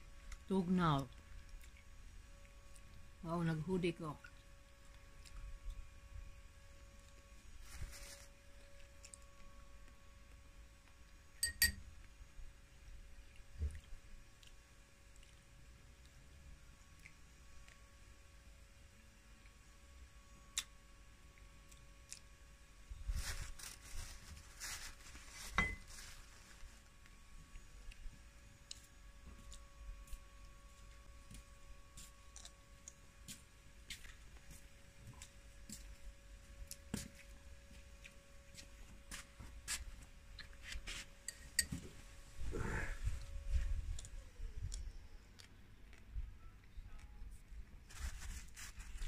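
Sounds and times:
spoon clinking on ceramic bowl: 11.4s - 11.8s, 41.3s - 41.8s
crunchy chewing: 32.0s - 33.0s.

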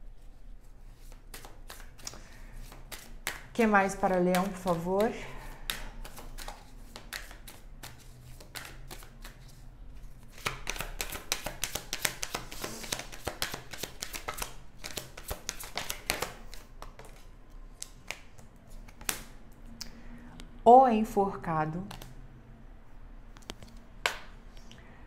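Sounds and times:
cards being shuffled: 0.9s - 3.4s, 5.6s - 9.6s, 10.2s - 19.4s.

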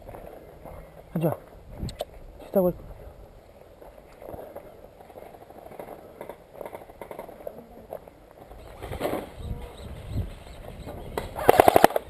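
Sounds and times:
clothing and gear rustling: 3.4s - 9.4s.

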